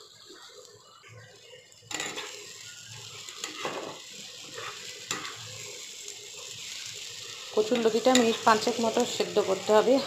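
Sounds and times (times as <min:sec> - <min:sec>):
food sizzling in hot oil: 0:00.0 - 0:10.0
spatula scraping a pan: 0:03.3 - 0:05.8.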